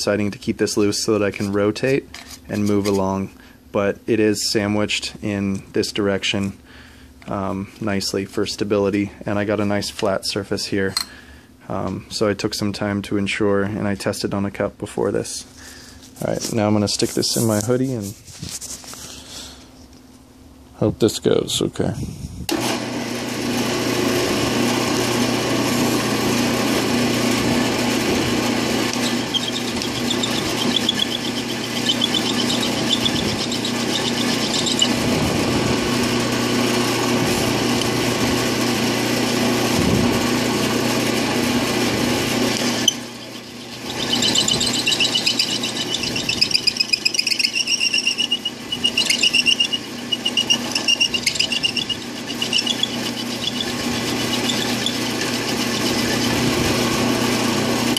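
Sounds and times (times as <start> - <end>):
drill press motor hum: 22.5 - 57.9
grinding stone scraping metal: 26.9 - 38.0, 40.6 - 57.9.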